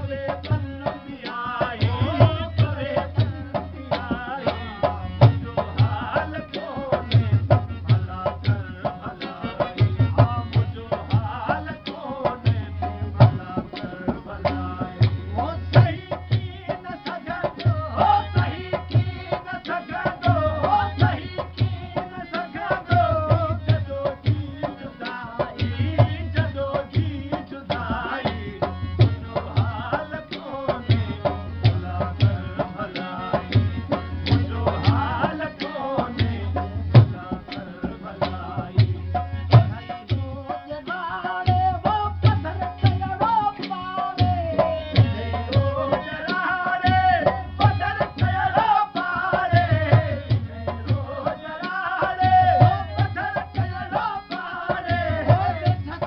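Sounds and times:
harmonium: 0.0 - 56.0
men singing: 0.0 - 56.0
hand drum beating: 25.8 - 56.0.

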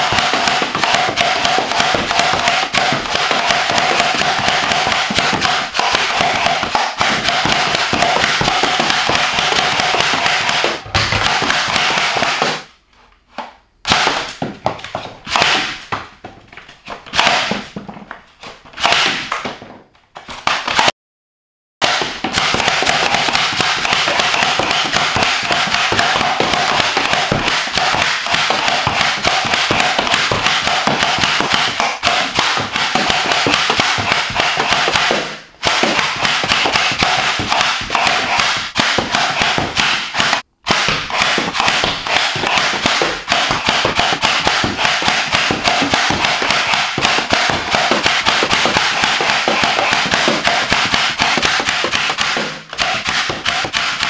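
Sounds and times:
foam rocket shots: 15.3 - 15.8.

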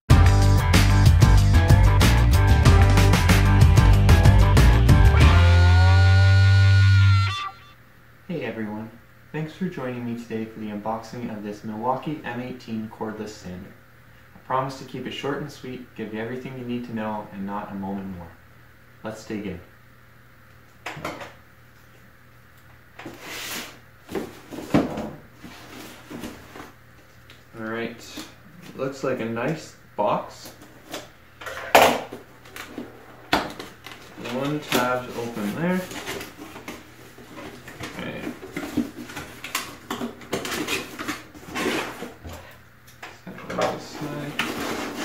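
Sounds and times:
cardboard box scraping on table: 23.0 - 24.8, 40.5 - 42.2, 44.0 - 45.0
cardboard rustling: 23.0 - 26.8, 33.6 - 42.5, 43.6 - 45.0.

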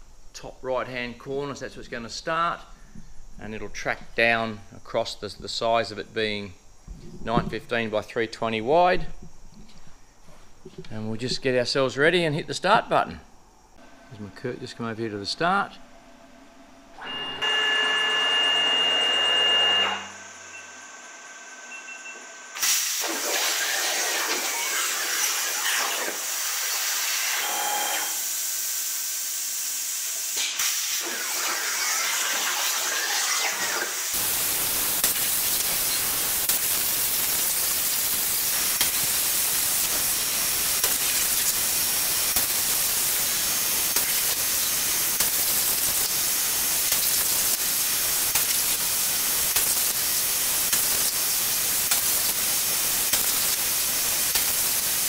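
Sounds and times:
plasma arc hissing: 22.5 - 55.0.

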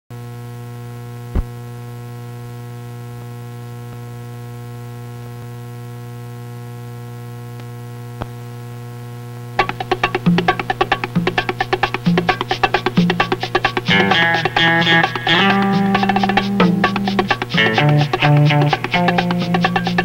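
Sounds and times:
electrical hum: 0.2 - 20.0
sharp pops: 1.3 - 1.6
plucked guitar music: 9.6 - 20.0.

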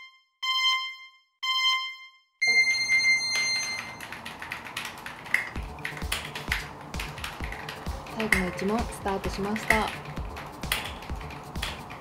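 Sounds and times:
electronic timer beeps: 0.0 - 4.0
keyboard keys typing: 3.2 - 12.0.

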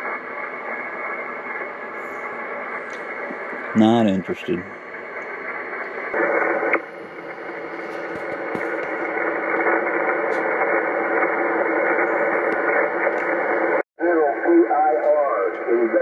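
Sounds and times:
radio static hiss: 0.0 - 16.0.

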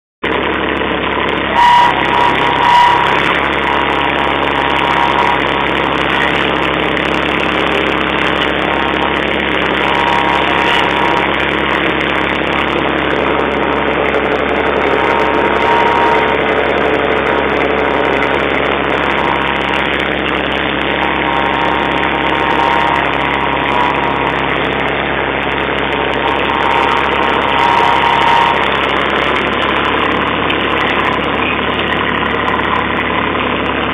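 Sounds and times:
tractor engine running: 0.2 - 33.9.

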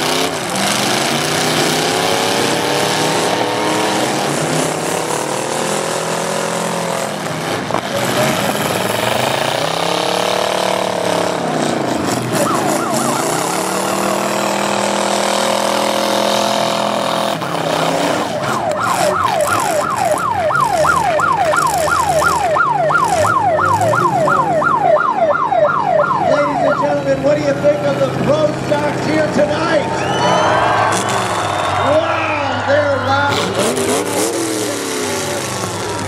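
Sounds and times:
car engines revving: 0.0 - 36.0
electronic siren yelping: 12.2 - 14.7, 17.6 - 27.3.

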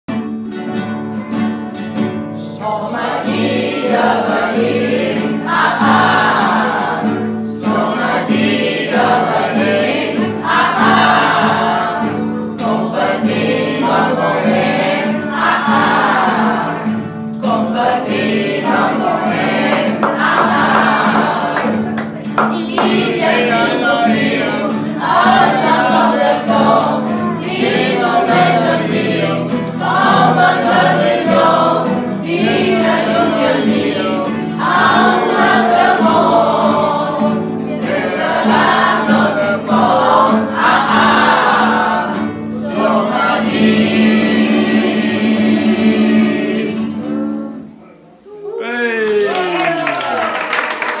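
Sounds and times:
acoustic guitars: 0.1 - 48.8
group of voices singing: 2.4 - 48.2.

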